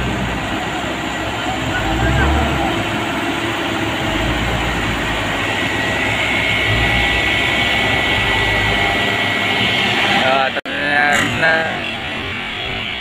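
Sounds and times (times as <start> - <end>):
diesel truck engine straining: 0.0 - 13.0
high steady whine: 1.6 - 10.6.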